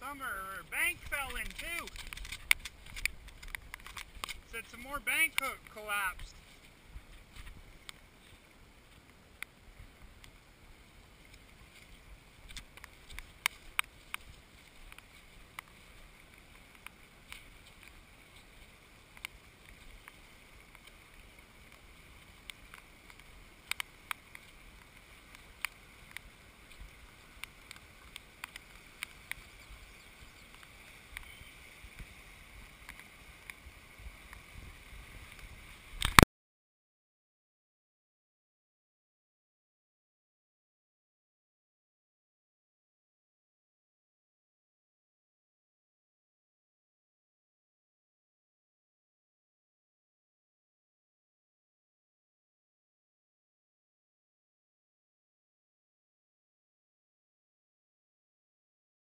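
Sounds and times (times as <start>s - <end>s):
fast water rushing: 0.3s - 36.2s
wind rumble on microphone: 29.4s - 36.2s.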